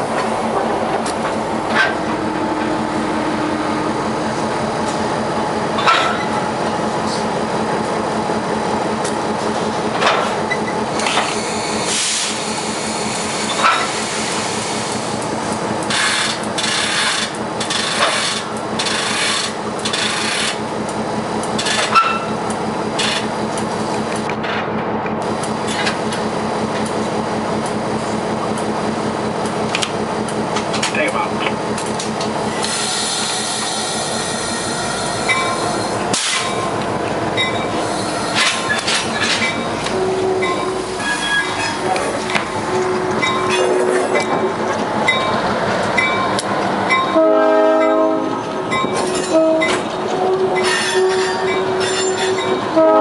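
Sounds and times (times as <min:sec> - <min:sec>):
diesel locomotive engine hum: 0:00.0 - 0:53.0
air hissing: 0:11.2 - 0:15.0.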